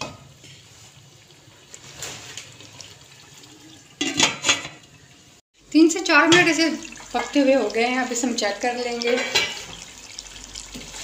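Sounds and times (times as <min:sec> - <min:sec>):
gravy simmering with soft hiss: 0:00.0 - 0:11.0
metal lid clattering onto wok: 0:04.0 - 0:04.8.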